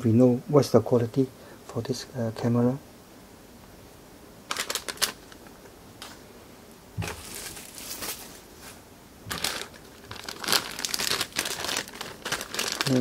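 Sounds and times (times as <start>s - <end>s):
crinkling plastic bags: 4.5s - 6.2s, 7.0s - 13.0s.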